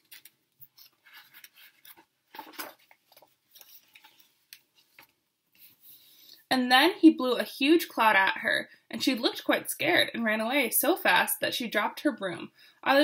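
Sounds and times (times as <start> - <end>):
paper crinkles and clicks: 0.0 - 5.7
paper page rustling: 0.0 - 5.8.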